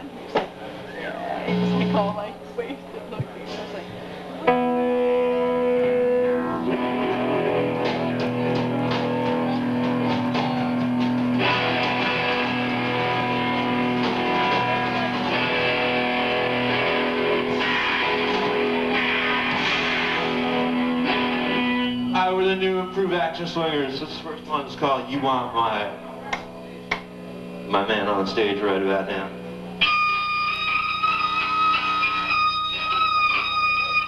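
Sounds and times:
rock band playing live: 4.4s - 24.0s, 29.8s - 34.0s.

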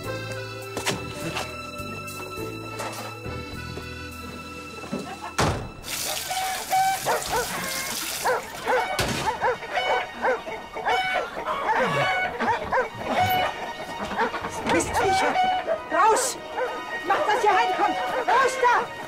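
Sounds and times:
dog barking and yelping: 6.0s - 18.9s.

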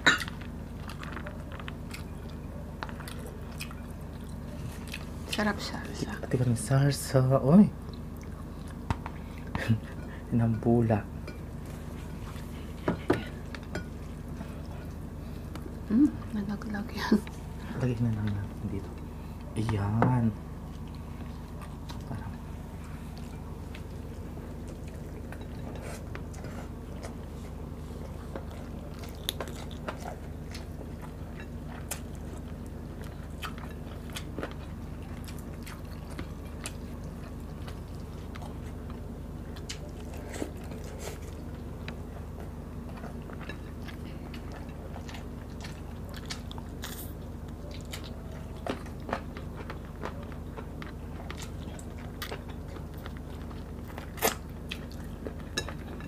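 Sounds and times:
steady low hum: 0.0s - 56.0s
people biting and chewing: 20.7s - 56.0s.

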